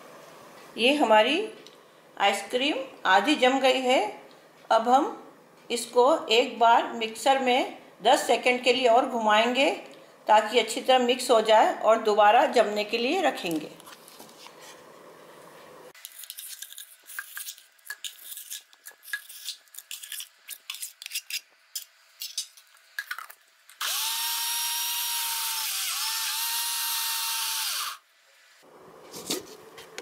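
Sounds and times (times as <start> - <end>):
mixer grinder motor running: 23.8 - 28.0.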